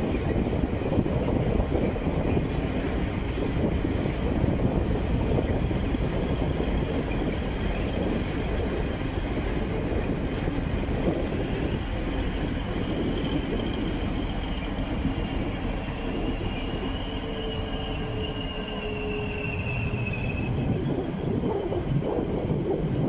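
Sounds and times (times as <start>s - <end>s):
freight train rumbling: 0.0s - 23.0s
wheels squealing: 11.4s - 22.3s.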